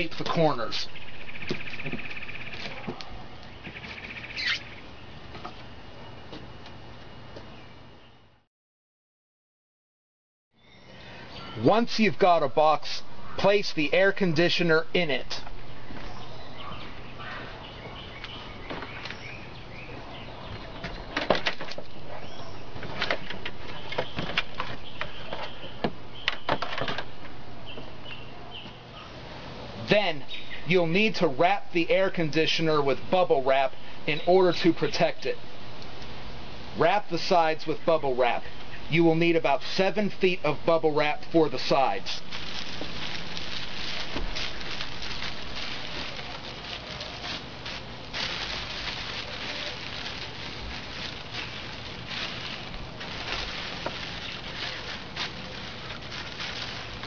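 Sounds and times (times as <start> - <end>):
birds chirping faintly: 0.0 - 8.4, 10.5 - 29.3, 30.0 - 31.2, 41.0 - 57.0
bubble wrap crinkling: 41.6 - 57.0.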